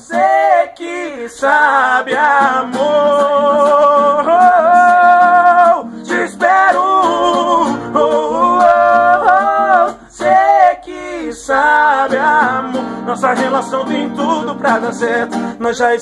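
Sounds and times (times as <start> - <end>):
acoustic guitar: 0.0 - 16.0.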